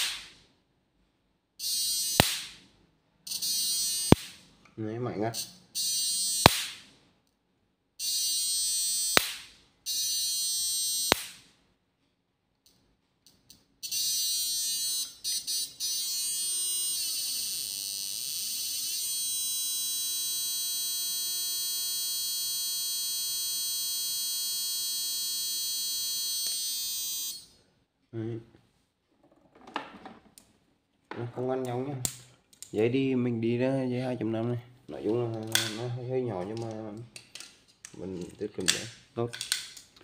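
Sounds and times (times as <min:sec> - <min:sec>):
sharp electrical snap: 0:00.0 - 0:00.4, 0:02.0 - 0:02.6, 0:04.0 - 0:04.5, 0:06.3 - 0:06.9, 0:09.0 - 0:09.6, 0:10.9 - 0:11.5
high-pitched electronic whine: 0:13.9 - 0:27.5.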